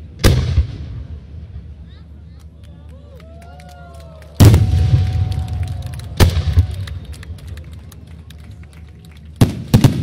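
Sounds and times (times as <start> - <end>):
firework crackles: 9.2 - 10.0.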